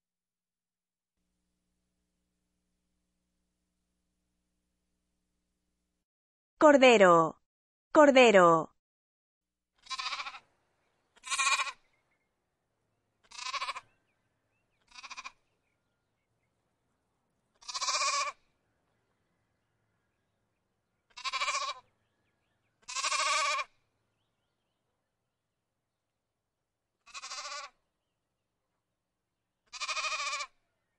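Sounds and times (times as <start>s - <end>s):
lamb bleating: 9.8s - 10.4s, 11.2s - 11.8s, 13.2s - 13.9s, 14.8s - 15.4s, 17.6s - 18.4s, 21.1s - 21.8s, 22.8s - 23.7s, 27.0s - 27.8s, 29.7s - 30.6s.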